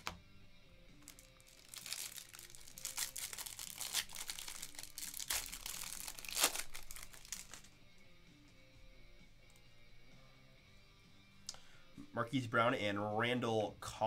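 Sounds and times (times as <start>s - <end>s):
cellophane wrapper crinkling and tearing: 1.0s - 7.7s.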